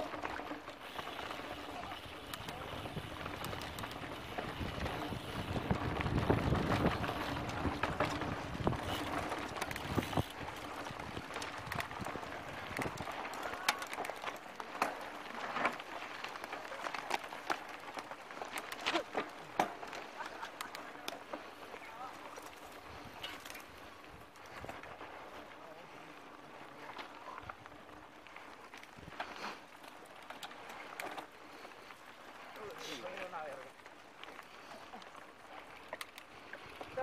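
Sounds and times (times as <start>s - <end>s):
bike rattling over bumps: 0.0s - 37.0s
wind rumbling on microphone: 2.2s - 13.5s.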